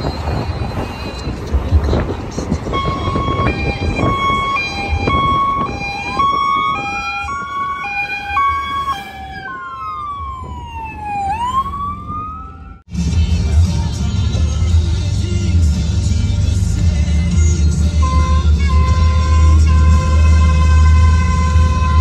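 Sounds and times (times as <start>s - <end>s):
vehicle rumble: 0.0s - 22.0s
high-low siren: 2.6s - 12.9s
wailing siren: 2.6s - 12.9s, 18.0s - 22.0s.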